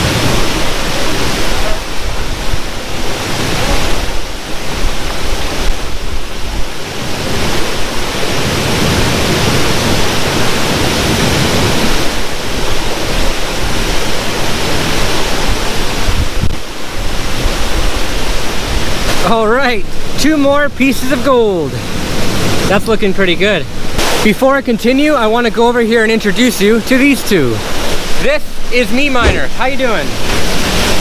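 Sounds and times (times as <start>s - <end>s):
wind buffeting the microphone: 0.0s - 19.2s
creek and waterfall rushing: 0.0s - 31.0s.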